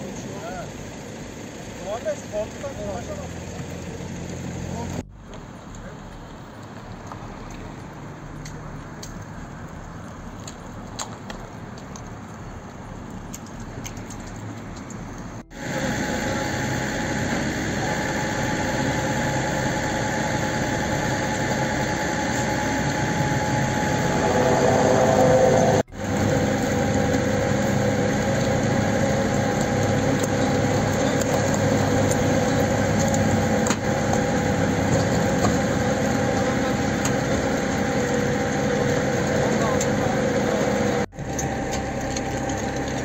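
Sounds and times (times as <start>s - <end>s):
engine idling: 15.0s - 43.0s.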